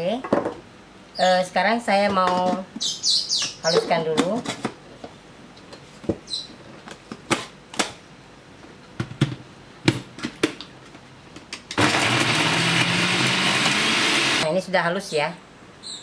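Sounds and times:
blender motor whirring: 11.8s - 14.5s.

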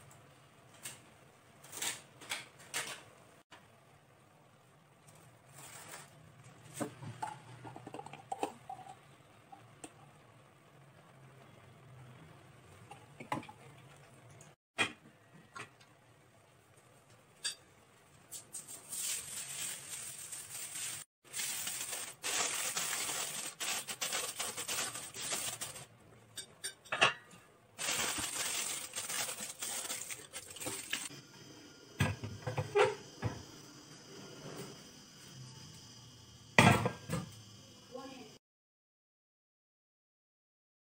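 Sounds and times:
aluminium foil crinkling: 18.3s - 25.9s, 27.8s - 31.1s.

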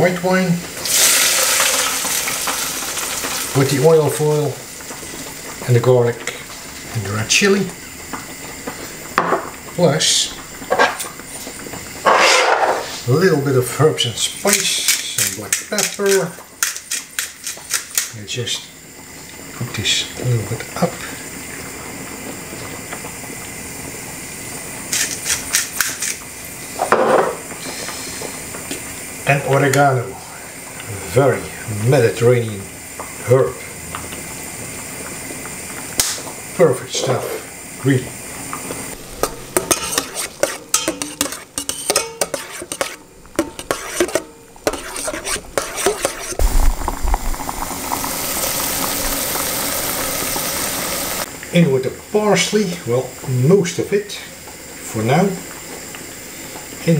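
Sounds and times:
background hiss: 0.0s - 56.9s
sauce sizzling: 0.0s - 56.9s
pepper mill grinding: 0.8s - 3.7s, 14.4s - 18.2s, 24.9s - 26.2s, 39.0s - 48.0s
metal tongs scraping a pan: 12.1s - 12.9s, 39.2s - 46.4s.

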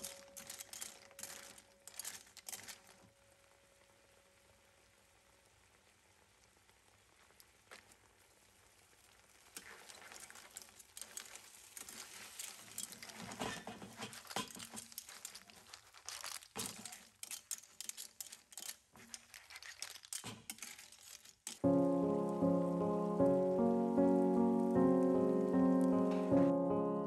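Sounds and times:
clam shells and tongs clattering: 0.0s - 3.2s, 9.6s - 21.7s
cooking liquid bubbling: 0.0s - 26.1s.

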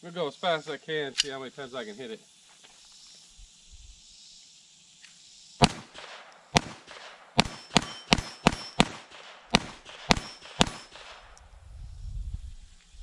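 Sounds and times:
pistol shots: 5.6s - 11.4s
bullets ringing on steel: 7.4s - 9.0s, 9.9s - 11.2s.

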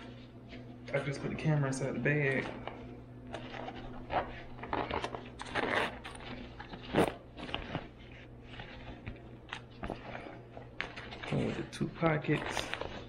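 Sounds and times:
clicks and scrapes: 2.3s - 13.0s
metal zipper rasp: 3.4s - 7.6s.

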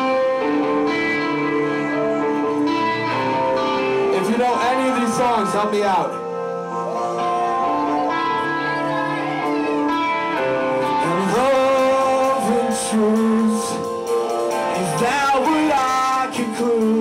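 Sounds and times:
punk band playing: 0.0s - 17.0s
person singing: 6.8s - 17.0s.

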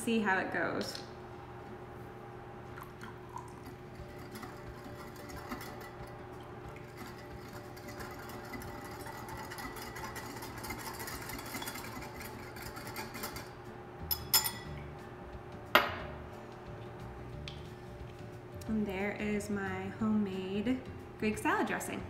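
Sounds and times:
whisk scraping bowl: 3.7s - 13.5s.

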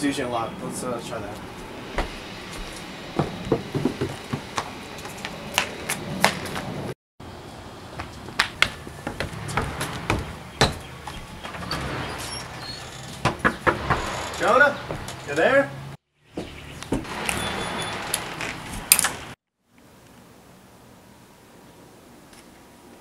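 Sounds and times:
footsteps on porch: 1.2s - 6.8s, 7.8s - 15.7s, 16.3s - 19.0s.

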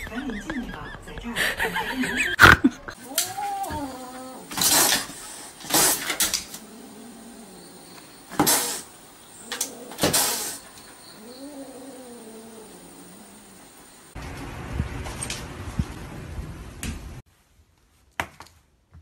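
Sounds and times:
cat hissing: 2.9s - 14.2s
low wavering growl: 6.4s - 8.2s, 11.1s - 14.2s.

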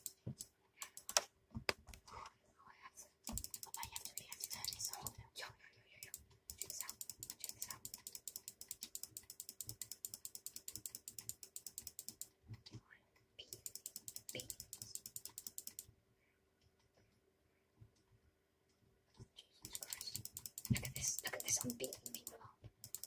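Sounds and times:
rapid light clicking: 0.0s - 1.3s, 3.2s - 5.2s, 6.0s - 12.4s, 13.5s - 15.9s, 19.6s - 23.0s.

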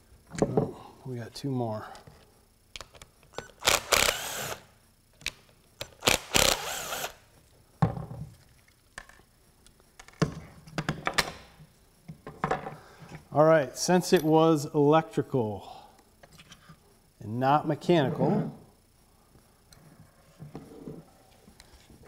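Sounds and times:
cordless drill running: 3.4s - 4.7s, 6.0s - 7.2s.

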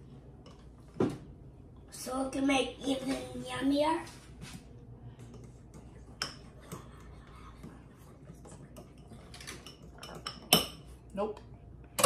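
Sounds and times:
spoon stirring batter in glass bowl: 5.1s - 10.9s.

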